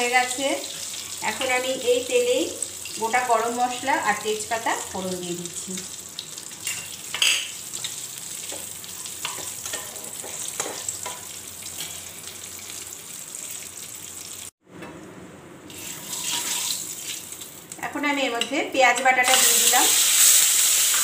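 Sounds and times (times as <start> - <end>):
spices sizzling in hot oil: 0.0 - 14.6, 15.7 - 21.0
spatula scraping and tapping pan: 6.6 - 12.0.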